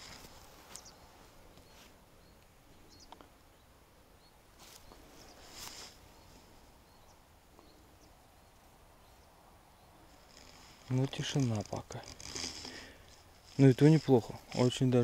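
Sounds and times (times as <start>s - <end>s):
brief rustles: 4.6s - 6.0s.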